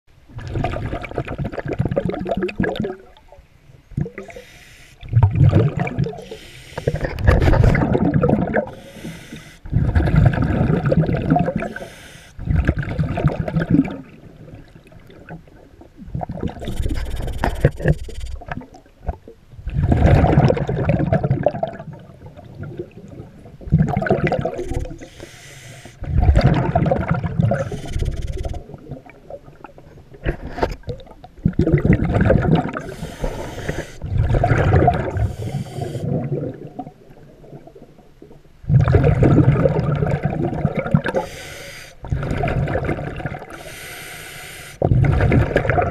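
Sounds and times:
regulator bubbling underwater: 0.3s - 3.3s, 3.9s - 25.3s, 26.0s - 29.9s, 30.8s - 38.0s, 38.6s - 41.4s, 42.0s - 43.7s, 44.8s - 45.9s
regulator hiss: 4.3s - 5.0s, 6.2s - 7.0s, 24.7s - 26.0s, 32.8s - 34.0s, 35.2s - 36.0s, 41.2s - 42.0s.

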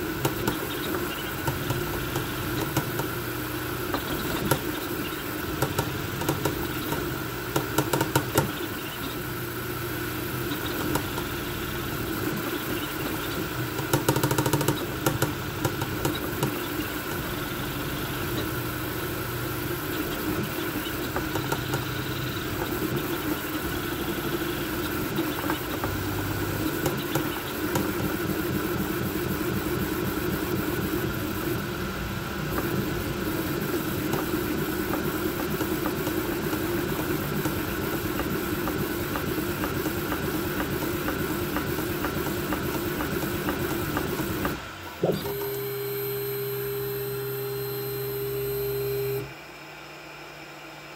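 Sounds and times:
stepper motors humming: 0.0s - 49.4s
cooling fans whirring: 0.0s - 50.9s
rapid clicking: 12.0s - 17.4s, 32.5s - 44.6s.

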